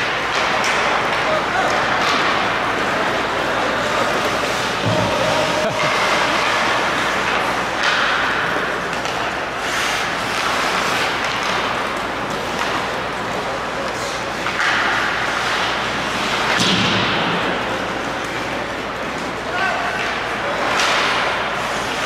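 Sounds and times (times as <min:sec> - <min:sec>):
skates scraping on ice: 0:00.0 - 0:22.0
hockey stick and puck knocks: 0:04.2 - 0:13.0, 0:14.4 - 0:18.4.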